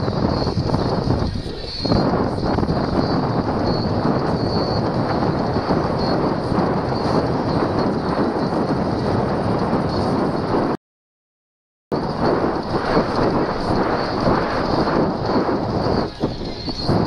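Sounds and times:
road noise: 0.0 - 10.8, 11.9 - 17.0
wind buffeting microphone: 0.0 - 10.8, 11.9 - 17.0.

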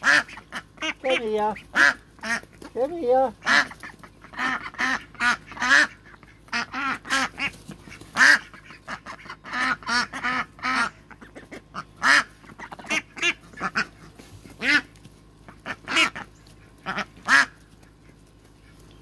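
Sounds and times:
ducks quacking: 0.0 - 19.0.

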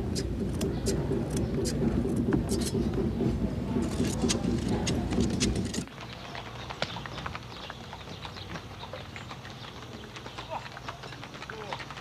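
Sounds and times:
loud jumble with sharp clicks: 0.0 - 5.9
donkey hooves clip-clopping on dirt: 0.0 - 12.0.

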